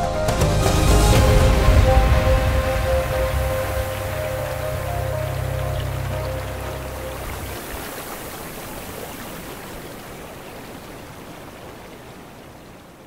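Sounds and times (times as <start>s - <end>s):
low music notes: 0.0s - 7.6s
steady rushing noise: 0.0s - 8.6s.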